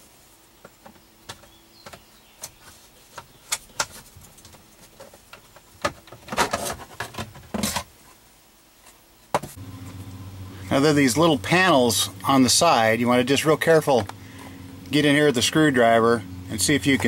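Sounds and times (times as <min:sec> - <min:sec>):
plastic clattering and rattling: 0:01.3 - 0:07.9.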